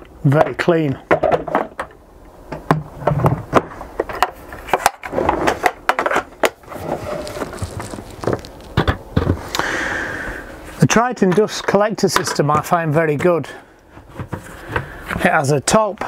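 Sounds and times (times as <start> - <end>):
hard plastic knocking and clattering: 0.4 - 6.6, 8.3 - 9.4, 14.0 - 14.9
plastic scraping: 3.0 - 9.6
plastic bucket handled: 4.8 - 9.6.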